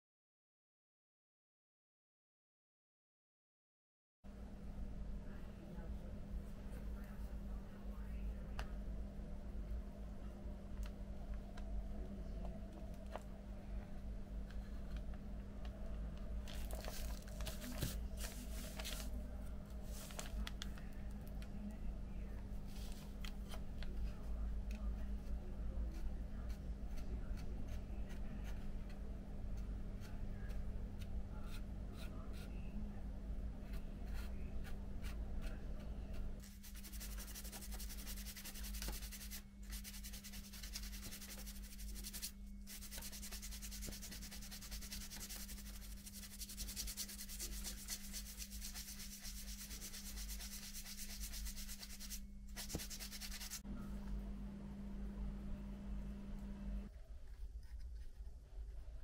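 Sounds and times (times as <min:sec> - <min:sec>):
sanding sponge scratchy hiss: 0:36.5 - 0:53.6.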